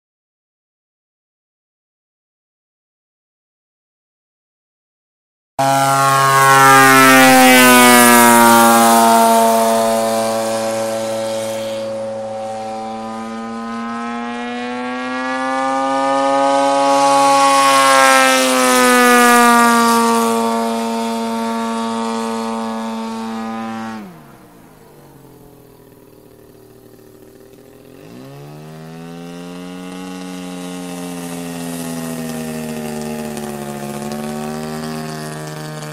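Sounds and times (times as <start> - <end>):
model plane engine: 5.6 - 35.9.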